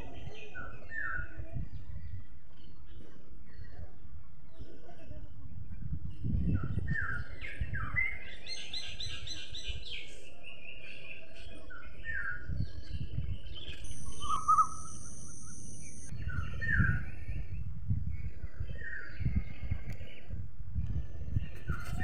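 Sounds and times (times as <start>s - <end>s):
songbirds chirping: 0.0s - 22.0s
bird trill: 13.5s - 16.9s
high-pitched whine: 13.7s - 17.0s.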